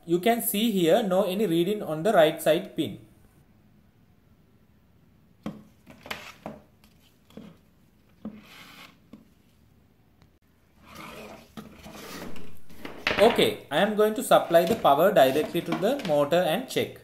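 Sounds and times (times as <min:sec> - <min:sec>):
rubbing scraping noise: 0:10.8 - 0:13.1, 0:14.2 - 0:16.1.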